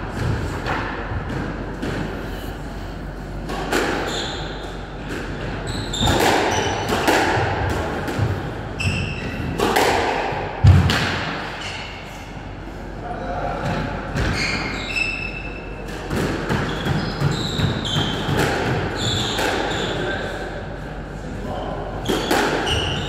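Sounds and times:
squash ball hitting rackets and walls: 0.0s - 2.2s, 3.3s - 12.0s, 13.6s - 20.2s, 22.0s - 23.0s
shoes squeaking on wooden floor: 16.6s - 18.3s.

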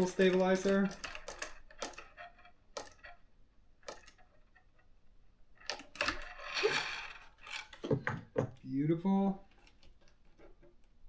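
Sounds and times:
screwdriver clicking and scraping: 0.0s - 4.9s, 5.6s - 7.9s.

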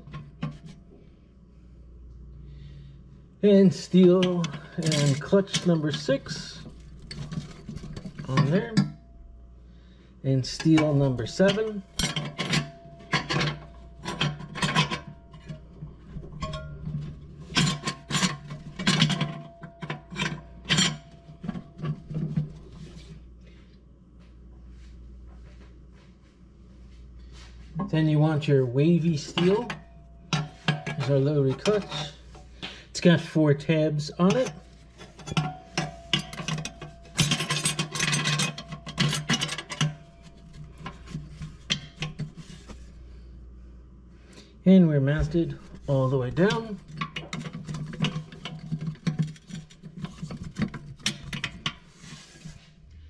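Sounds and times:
metal plates scraping and clinking: 3.7s - 9.0s, 10.3s - 23.1s, 27.4s - 43.0s, 45.1s - 53.0s.

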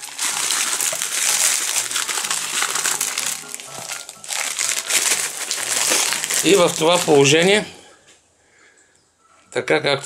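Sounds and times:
salt crystals pouring hiss: 0.0s - 7.3s
plastic bag crinkling: 0.0s - 7.7s
soft background music: 0.0s - 10.0s.

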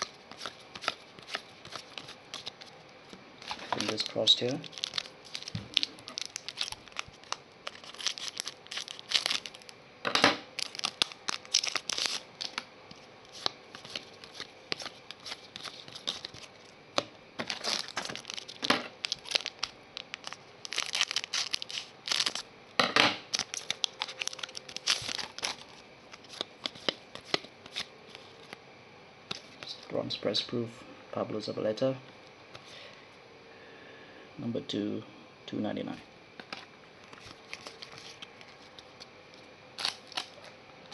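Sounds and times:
wrapper tearing and crinkling: 0.0s - 2.7s, 3.4s - 9.8s, 10.5s - 12.6s, 13.3s - 16.7s, 17.4s - 22.5s, 23.3s - 28.6s, 37.0s - 39.1s, 39.8s - 40.5s
cards shuffling: 0.0s - 2.8s, 3.4s - 9.7s, 10.6s - 16.7s, 23.3s - 28.6s, 36.4s - 39.1s.

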